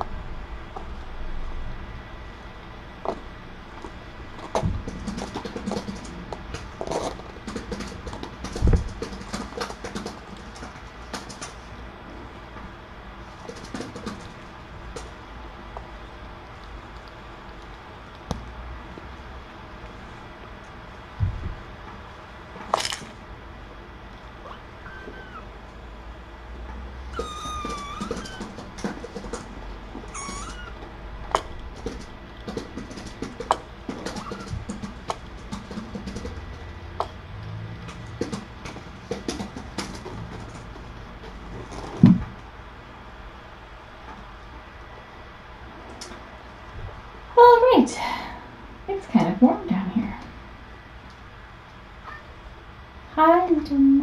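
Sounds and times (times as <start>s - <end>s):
kittens playing clicks and knocks: 3.8s - 11.7s, 13.2s - 15.2s, 27.1s - 42.4s
paws and claws tapping: 4.4s - 11.6s, 27.2s - 29.5s, 31.4s - 37.1s
kitten mewing: 24.4s - 25.6s, 27.1s - 28.7s, 30.0s - 30.8s, 34.0s - 34.7s.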